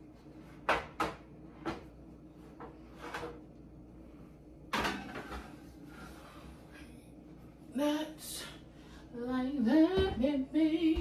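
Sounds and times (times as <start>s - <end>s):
baking pan clattering: 4.7s - 5.6s.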